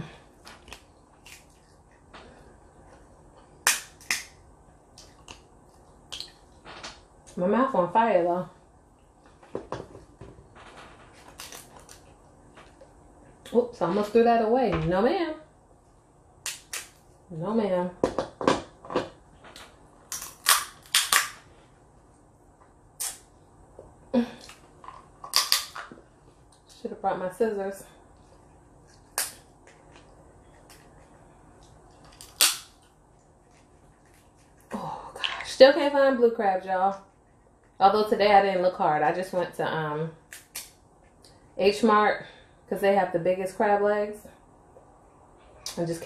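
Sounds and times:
shellfish shell snapping: 0:03.6 - 0:04.4, 0:16.4 - 0:17.0, 0:20.1 - 0:21.4, 0:25.2 - 0:25.8, 0:29.1 - 0:29.4, 0:32.0 - 0:32.9, 0:40.3 - 0:40.8.

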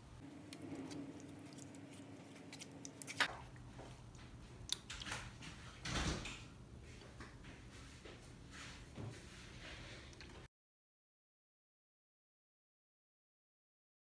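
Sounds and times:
wet squelches: 0:00.3 - 0:05.4.

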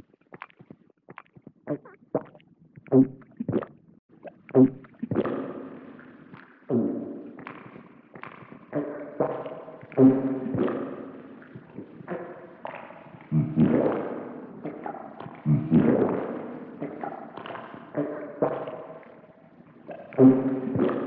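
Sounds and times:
cartoon pitched pops and blips: 0:01.2 - 0:05.6, 0:16.8 - 0:19.0, 0:19.9 - 0:21.0.

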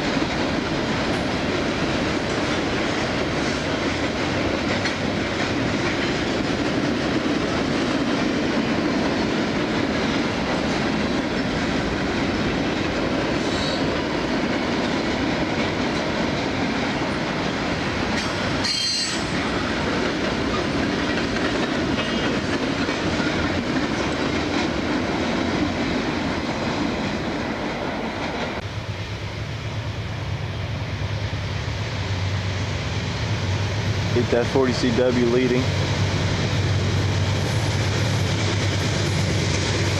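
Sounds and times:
train wheels rolling on rail: 0:00.0 - 0:39.9
high wheel squeal: 0:18.6 - 0:19.3.

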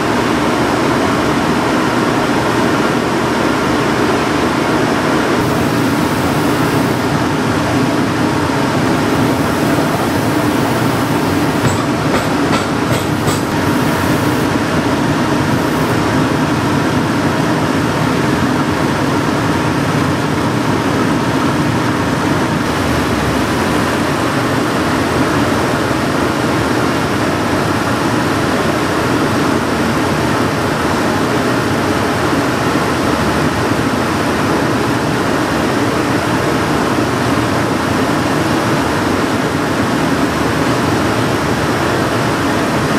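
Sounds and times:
wheels grinding shoe sole: 0:08.8 - 0:14.5.

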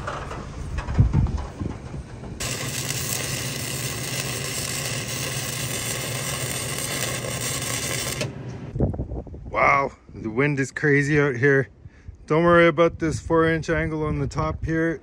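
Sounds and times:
welder arc crackling: 0:02.4 - 0:08.7.

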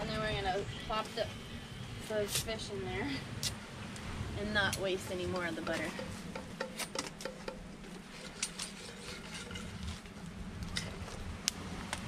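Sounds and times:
coal fire crackling and popping: 0:09.4 - 0:12.0.

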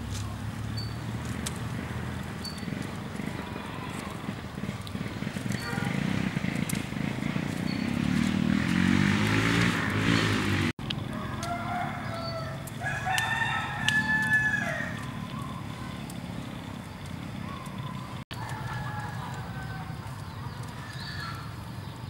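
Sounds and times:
rooster crowing: 0:11.0 - 0:15.4, 0:18.3 - 0:20.1.

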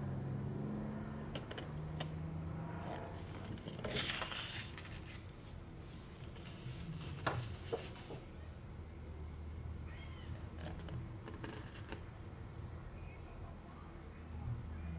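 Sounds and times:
paper rustling and sliding: 0:03.2 - 0:08.3.

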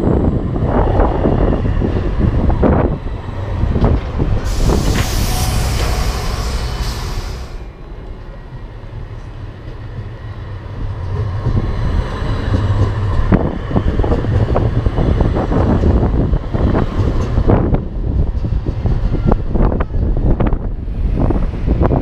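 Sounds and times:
tram rumbling past: 0:00.0 - 0:22.0
loud street hiss: 0:04.3 - 0:07.8.

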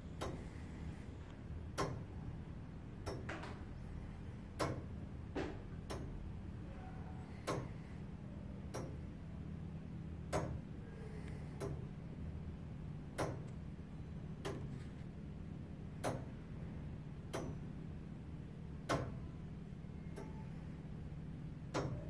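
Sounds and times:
low steady hum: 0:00.0 - 0:22.0
clock ticking: 0:00.2 - 0:00.4, 0:01.7 - 0:02.0, 0:04.6 - 0:04.9, 0:05.8 - 0:06.2, 0:07.4 - 0:07.7, 0:08.6 - 0:09.0, 0:11.6 - 0:11.8, 0:20.1 - 0:20.4.

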